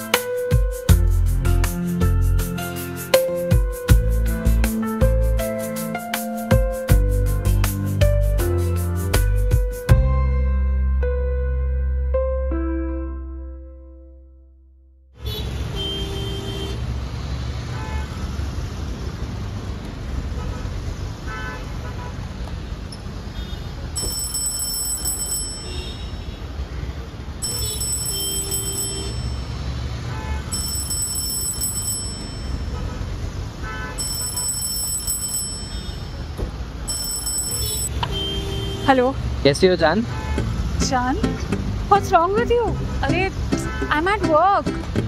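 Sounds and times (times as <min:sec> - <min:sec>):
car horn toots: 0:15.2 - 0:16.8, 0:27.4 - 0:29.4, 0:32.6 - 0:34.2, 0:37.6 - 0:39.1, 0:40.0 - 0:40.5, 0:42.7 - 0:44.2
traffic engines rumbling: 0:15.2 - 0:45.0
high-pitched electronic tone: 0:36.9 - 0:38.0.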